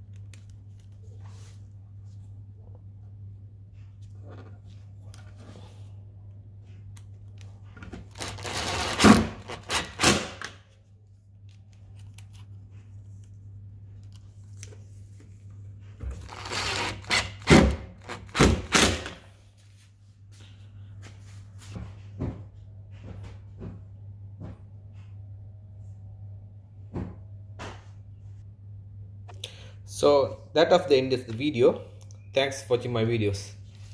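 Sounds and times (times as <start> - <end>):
steady low hum: 0.0 - 33.9
screwdriver scraping and whirring: 8.0 - 10.6, 16.1 - 19.2.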